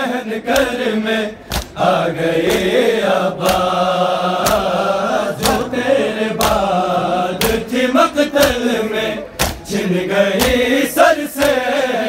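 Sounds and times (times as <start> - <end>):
men chanting in unison: 0.0 - 12.0
hands slapping on chests: 0.5 - 0.8, 1.5 - 1.8, 2.4 - 5.8, 6.4 - 8.8, 9.4 - 9.8, 10.4 - 11.8.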